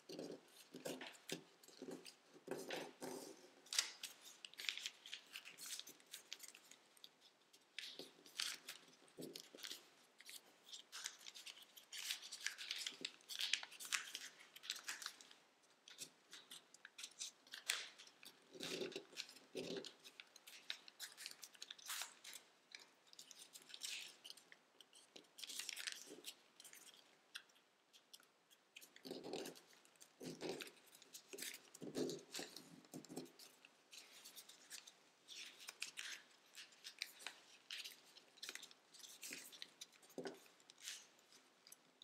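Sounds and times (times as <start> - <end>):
foil paper crinkling: 7.8 - 27.0, 29.0 - 41.8.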